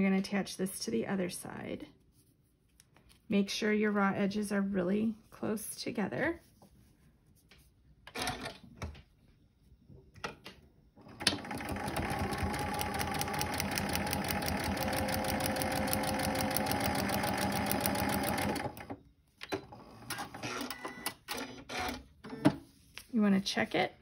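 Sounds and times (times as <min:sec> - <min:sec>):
sewing machine stitching: 0:11.0 - 0:19.0.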